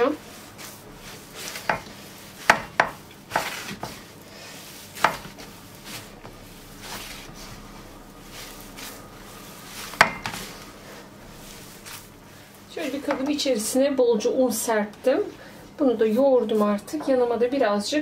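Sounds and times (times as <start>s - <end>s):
hands kneading dough: 0.0s - 13.8s.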